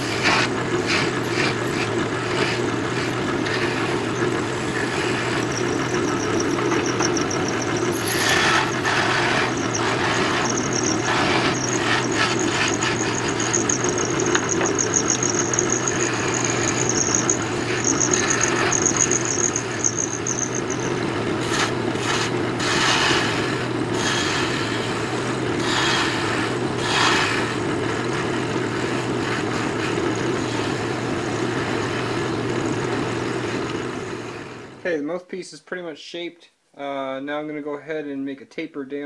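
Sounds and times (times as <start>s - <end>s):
pulsing high squeal: 0.0s - 21.0s
turning tool scraping wood: 0.0s - 23.4s
wood lathe running: 0.0s - 34.6s.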